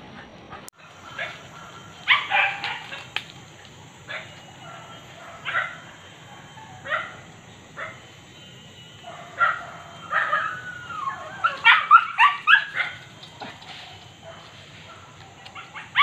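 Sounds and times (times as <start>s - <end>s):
dog barking: 0.6s - 3.1s, 4.1s - 8.0s, 9.0s - 16.0s
dog yipping: 2.1s - 3.1s, 9.1s - 13.1s.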